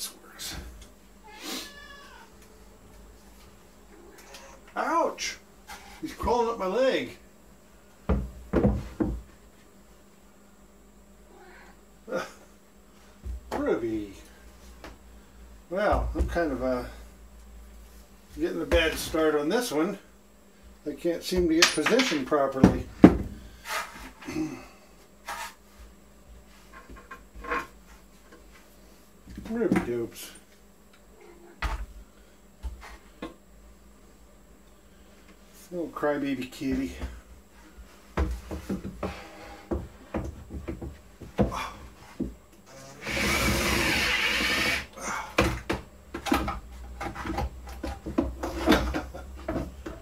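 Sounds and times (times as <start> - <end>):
cordless drill driving screw: 43.0 - 44.9.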